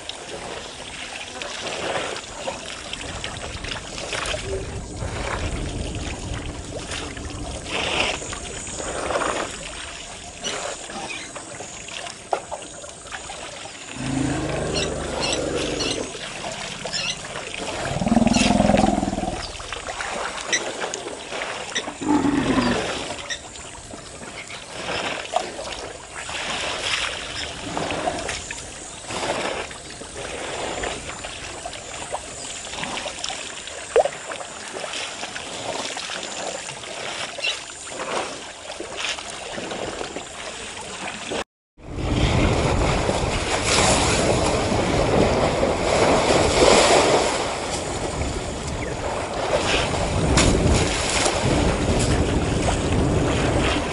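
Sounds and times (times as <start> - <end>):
water sloshing and splashing: 0.0 - 41.4, 42.1 - 53.9
wind on microphone: 1.7 - 10.5, 13.9 - 20.2, 41.8 - 53.9.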